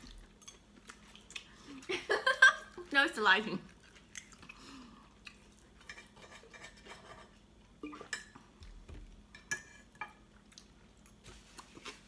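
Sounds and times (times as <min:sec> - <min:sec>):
knife and fork scraping on plates: 0:05.8 - 0:07.4.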